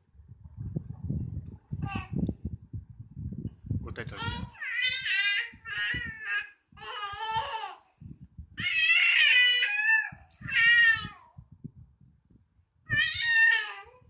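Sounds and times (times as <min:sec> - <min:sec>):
baby cooing and babbling: 0:01.8 - 0:02.2, 0:04.2 - 0:07.9, 0:08.6 - 0:11.4, 0:12.9 - 0:14.0.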